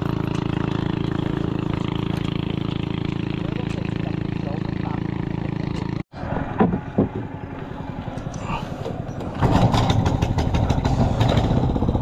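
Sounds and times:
engine with fast pulsing beat: 0.0s - 6.0s
small engine running: 0.0s - 6.0s.

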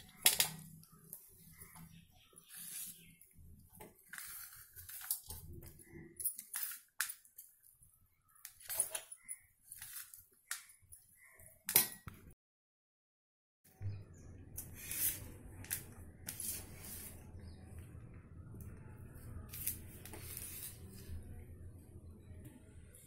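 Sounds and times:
spoon scraping metal plate: 0.3s - 6.9s, 19.5s - 21.1s.

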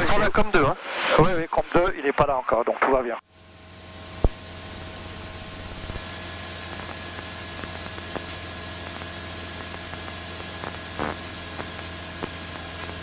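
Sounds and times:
high-pitched whines: 3.4s - 13.0s.

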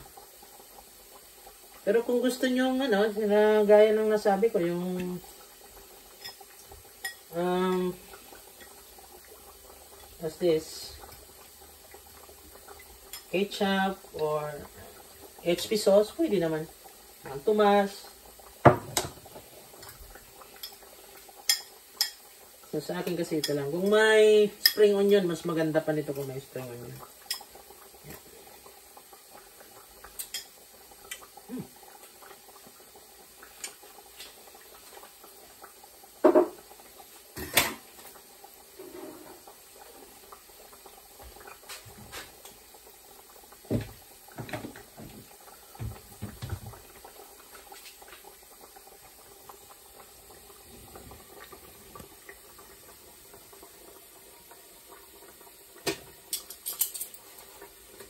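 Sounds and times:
bottles and jars knocking: 18.6s - 19.2s.

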